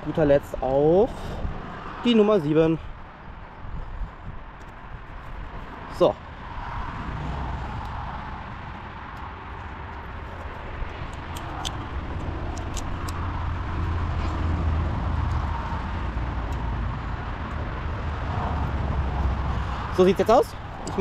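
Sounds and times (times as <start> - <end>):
small screwdriver clicks: 11.1 - 11.8, 12.5 - 13.2.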